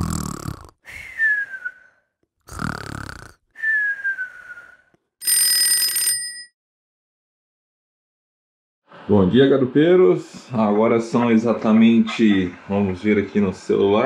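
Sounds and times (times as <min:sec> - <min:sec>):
cartoon snoring: 0:00.0 - 0:00.9, 0:02.4 - 0:03.5
falling whistle: 0:03.6 - 0:04.8
alarm-like ringing: 0:05.2 - 0:06.5.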